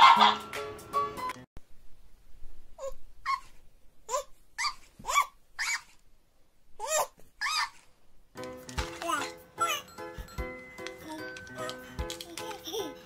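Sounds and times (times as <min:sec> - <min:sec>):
baby squealing: 0:02.8 - 0:06.0, 0:06.8 - 0:07.9.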